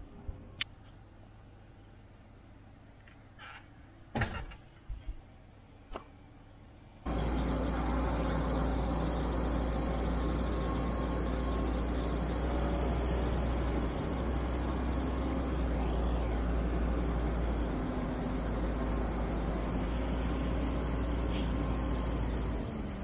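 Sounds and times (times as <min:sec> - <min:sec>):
diesel truck engine rumbling: 0:05.3 - 0:23.0.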